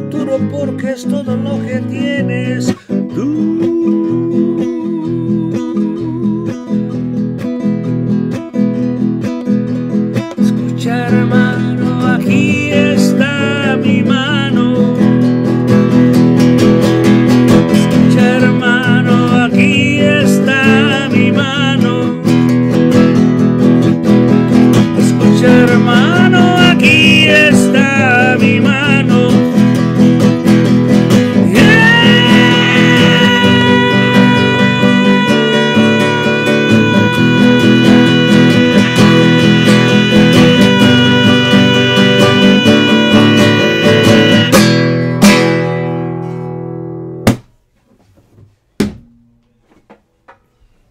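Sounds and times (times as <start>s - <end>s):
acoustic guitar strumming chords: 0.0s - 47.5s
wavering higher melody line: 31.6s - 44.9s
sharp knock: 47.2s - 47.6s.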